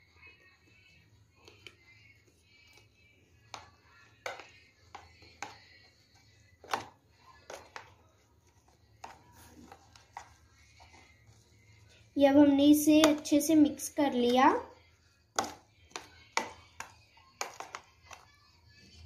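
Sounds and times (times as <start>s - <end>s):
spoon tapping plastic box: 3.4s - 8.0s, 8.9s - 11.0s, 13.0s - 13.3s, 15.3s - 18.4s.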